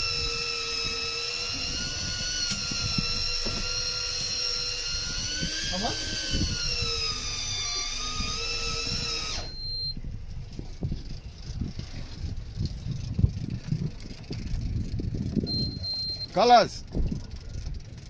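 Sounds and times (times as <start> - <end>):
electric fishing reel motor whining: 0.0 - 10.0
wind rumble: 0.0 - 18.0.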